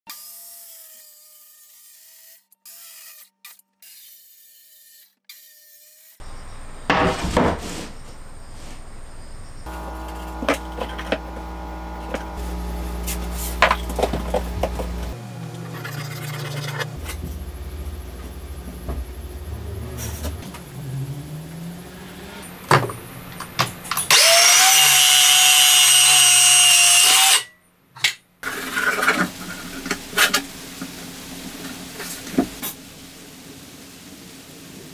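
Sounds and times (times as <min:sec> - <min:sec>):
circular saw cutting board: 0:00.1 - 0:32.9
wooden boards knocking: 0:06.9 - 0:08.0.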